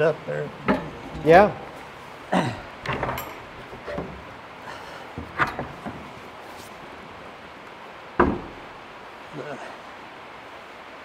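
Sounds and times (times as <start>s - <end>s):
wooden knocks: 0.6s - 2.0s, 2.7s - 4.4s, 5.2s - 6.3s, 8.2s - 8.7s.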